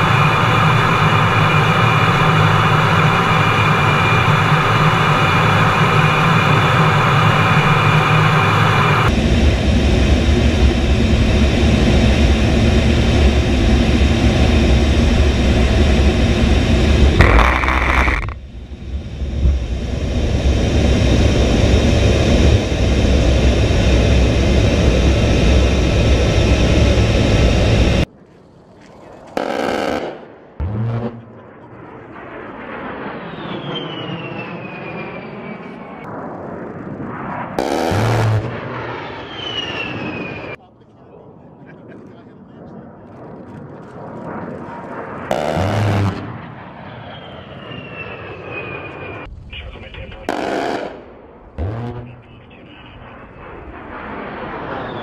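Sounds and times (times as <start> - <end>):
very loud burst: 0.0 - 27.7, 37.1 - 40.6, 49.2 - 55.0
steady whine: 0.0 - 28.2, 29.1 - 40.6, 42.6 - 55.0
jet engines in flight: 0.0 - 55.0.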